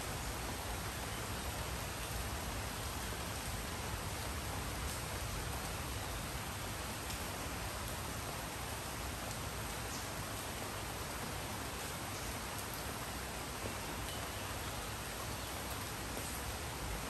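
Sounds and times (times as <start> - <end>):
steady rain hiss: 0.0 - 17.0
faint raindrop ticks: 6.9 - 8.0, 9.2 - 10.7, 11.8 - 14.7.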